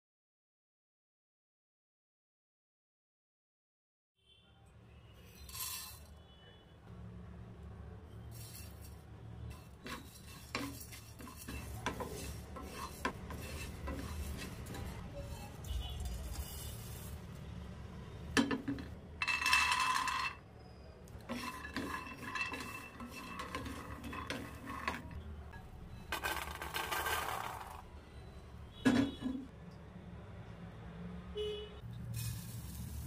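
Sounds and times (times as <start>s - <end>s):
nuts stirred in a pan: 5.2s - 6.1s, 8.3s - 17.7s, 21.1s - 25.2s, 26.1s - 27.8s.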